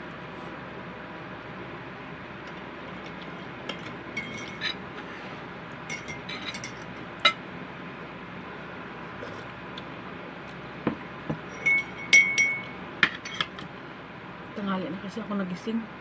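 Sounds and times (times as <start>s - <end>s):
utensils clinking against dishes: 3.0s - 4.8s, 5.9s - 7.4s, 11.5s - 13.6s.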